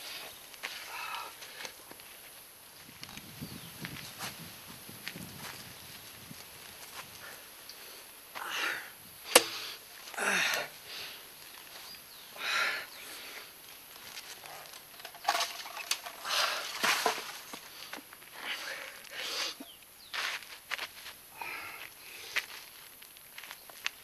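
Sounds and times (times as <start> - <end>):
man breathing heavily and gasping: 0.8 - 1.8, 7.2 - 11.3, 12.3 - 13.6, 16.1 - 16.8, 17.6 - 19.7, 21.3 - 22.5
man groaning: 10.2 - 10.7.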